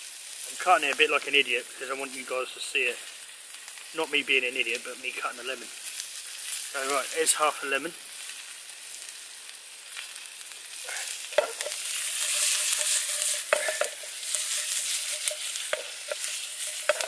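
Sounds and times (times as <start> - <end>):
vegetables sizzling in a pan: 0.0 - 17.0
sharp clicks and pops: 11.3 - 17.0.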